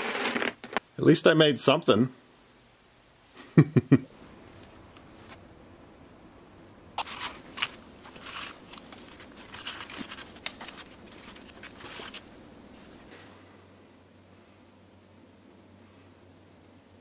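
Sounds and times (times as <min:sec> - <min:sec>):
plaster stirred in plastic cup: 0:07.0 - 0:13.1.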